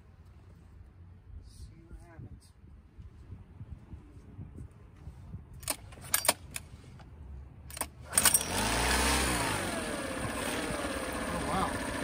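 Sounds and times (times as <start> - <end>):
outboard motor running: 8.1 - 12.0.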